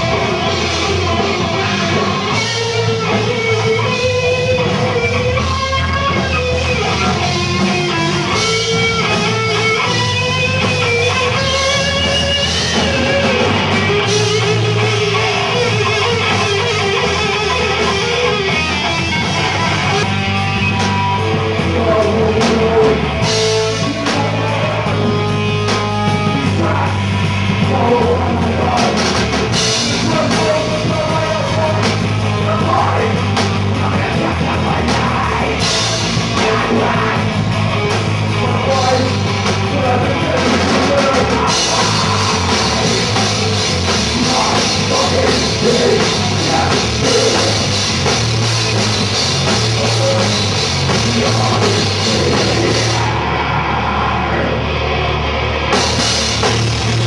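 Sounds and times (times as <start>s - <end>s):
drum kit: 0.0s - 53.6s, 54.6s - 57.0s
electric guitar: 0.0s - 57.0s
person singing: 21.6s - 25.5s, 27.6s - 37.3s, 38.4s - 48.1s, 49.5s - 55.2s.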